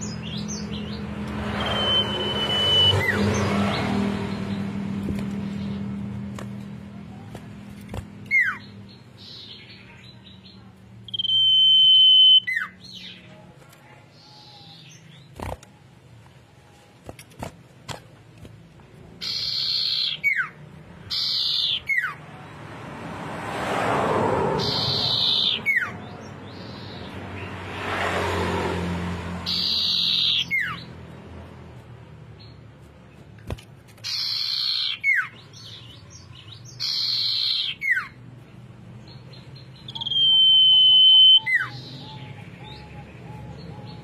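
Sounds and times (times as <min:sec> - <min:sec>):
bird whistling: 0:01.6 - 0:03.2, 0:11.1 - 0:12.8, 0:19.2 - 0:22.1, 0:29.5 - 0:30.8, 0:36.7 - 0:38.1, 0:39.8 - 0:43.4.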